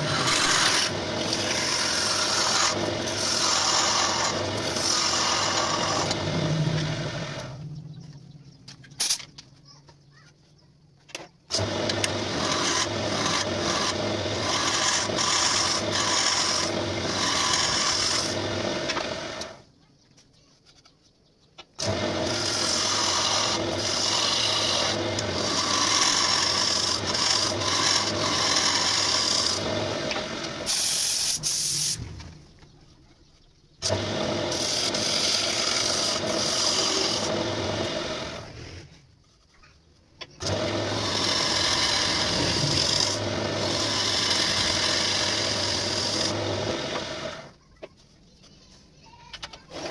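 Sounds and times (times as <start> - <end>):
lathe tool scraping wood: 0.0 - 7.6, 11.5 - 19.6, 21.8 - 32.1, 33.3 - 39.5, 40.3 - 47.5.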